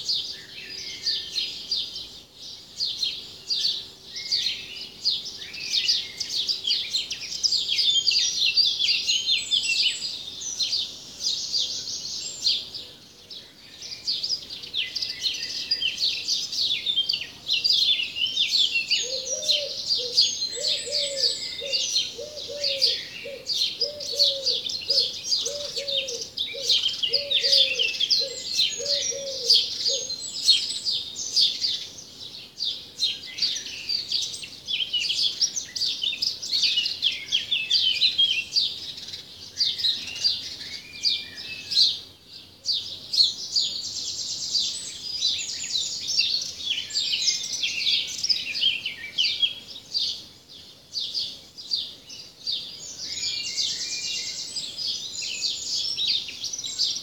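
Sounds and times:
small birds chirping chorus: 0:00.0 - 0:57.0
lower bird call: 0:18.6 - 0:30.7.

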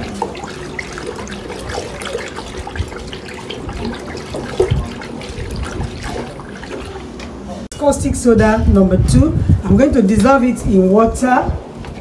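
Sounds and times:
water sloshing in plastic basin: 0:00.0 - 0:07.7.

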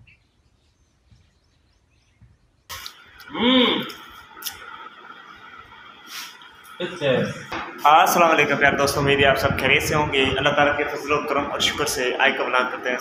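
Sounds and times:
steady background noise: 0:02.2 - 0:13.0
short voice sound: 0:02.7 - 0:04.0.

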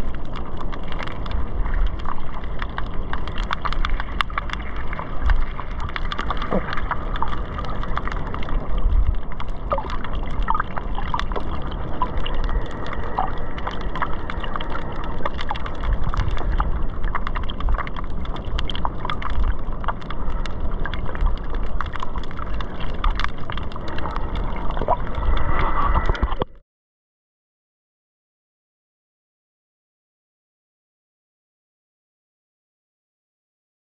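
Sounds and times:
sharp underwater clicks and crackles: 0:00.0 - 0:26.6
underwater surging rumble: 0:00.0 - 0:26.6.

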